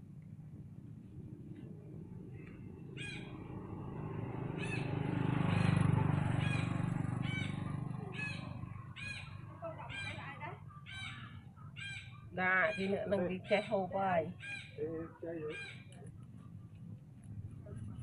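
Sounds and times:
bird calling: 2.3 - 3.6, 4.5 - 16.7.

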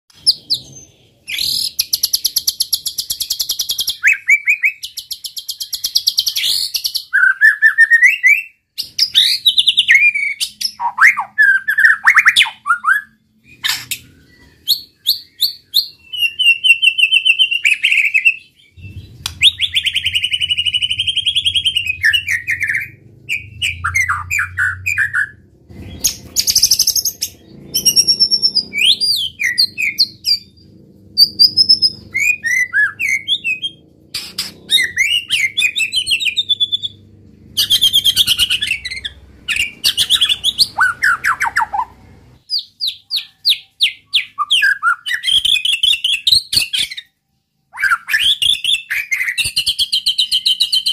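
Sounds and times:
bird singing: 0.1 - 50.9
low hum: 18.7 - 42.4.

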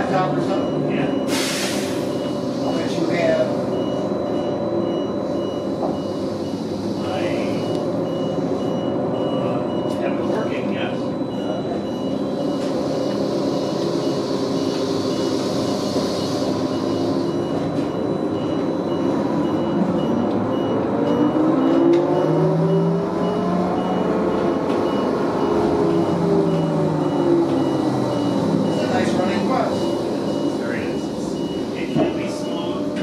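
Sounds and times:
bus running rumble: 0.0 - 33.0
rapid high beeping: 2.1 - 33.0.

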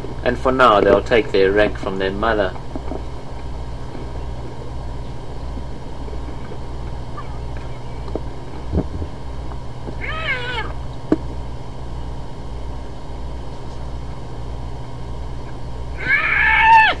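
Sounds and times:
low hum: 0.0 - 17.0
hyenas squealing: 10.0 - 10.8, 16.0 - 17.0.

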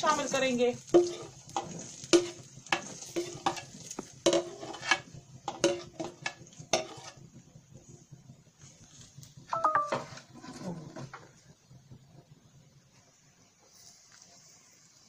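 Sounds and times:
oil sizzling: 0.0 - 15.0
brief high-pitched tone: 9.6 - 10.1.

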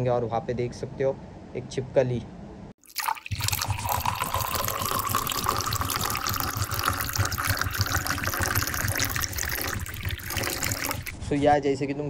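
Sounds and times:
water dripping: 2.8 - 11.2
brush scrubbing: 8.3 - 11.6.

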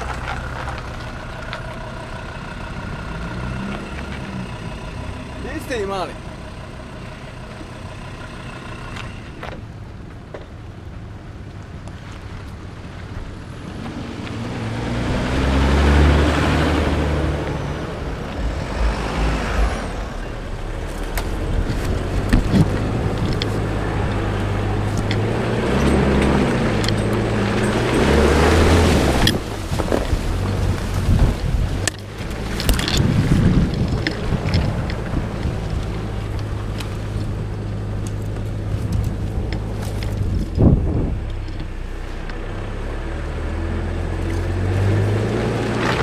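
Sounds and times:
car engine revving under load: 13.7 - 46.0
wind rushing on microphone: 16.4 - 26.1, 26.8 - 37.5, 38.5 - 41.6.

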